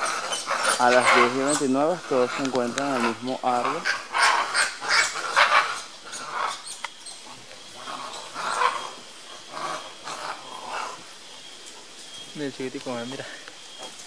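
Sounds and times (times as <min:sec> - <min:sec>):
monkeys calling: 0:00.0 - 0:14.0.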